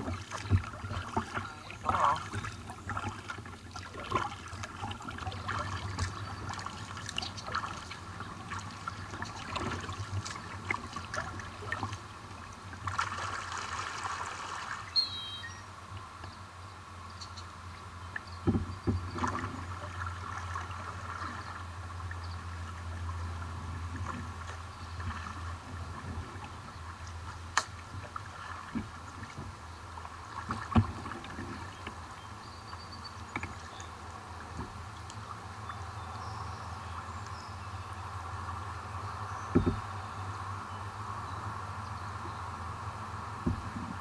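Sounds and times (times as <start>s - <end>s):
paddle splashing water: 0.0s - 15.5s, 18.1s - 35.7s
sharp knocks: 39.5s - 39.8s.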